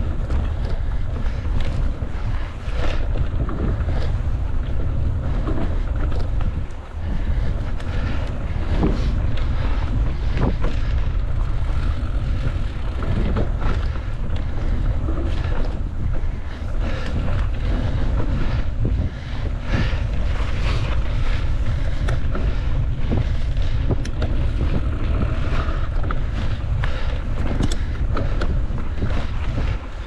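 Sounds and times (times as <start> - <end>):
bike clicking and rattling: 0.0 - 30.0
wind buffeting microphone: 0.0 - 30.0.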